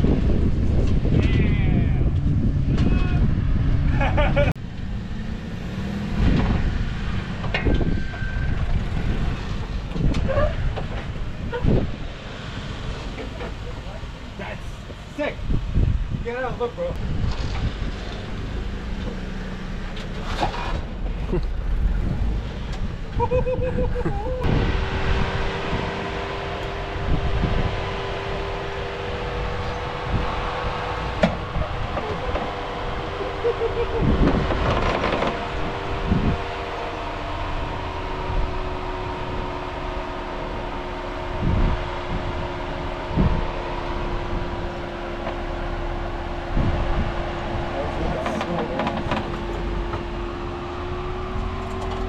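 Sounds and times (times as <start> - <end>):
low engine rumble: 0.0 - 52.0
steady whine: 23.6 - 52.0
knocks and thumps: 34.2 - 35.5, 48.2 - 50.1.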